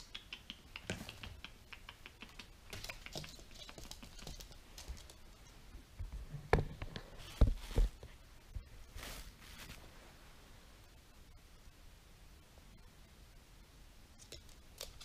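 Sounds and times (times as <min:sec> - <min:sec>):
light clicking and tapping: 0:00.0 - 0:05.2.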